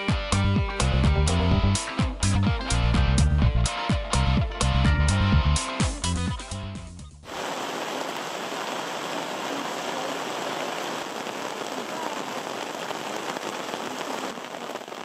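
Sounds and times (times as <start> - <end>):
steady rain falling: 7.2 - 15.0
water running off canopy: 7.3 - 15.0.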